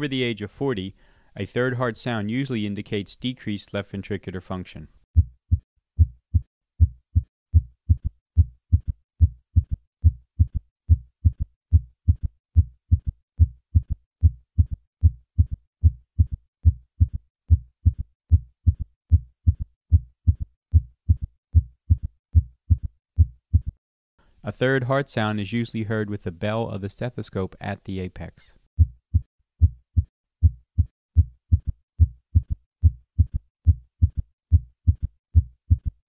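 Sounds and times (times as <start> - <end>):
heartbeat thumps: 5.2 - 23.8, 28.8 - 36.0.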